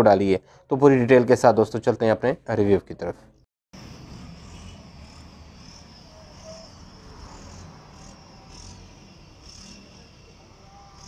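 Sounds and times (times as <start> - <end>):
shrill insect chirping: 3.8 - 11.0.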